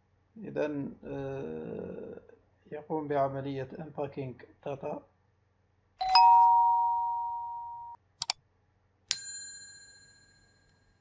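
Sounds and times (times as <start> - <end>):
bright bell ding: 6.0 - 8.0, 9.1 - 10.7
two-tone chime: 6.0 - 8.0.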